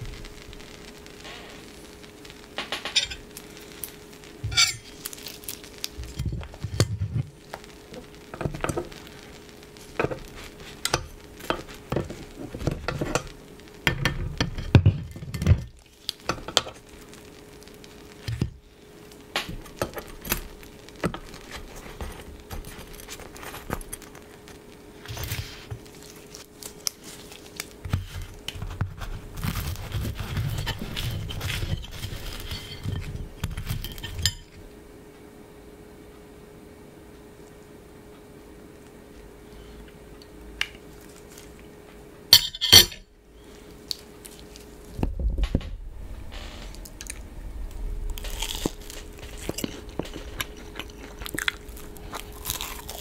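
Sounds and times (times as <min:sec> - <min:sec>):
clinks on a plate: 0:04.5 - 0:04.8
fork and knife scraping metal plate: 0:04.5 - 0:04.9.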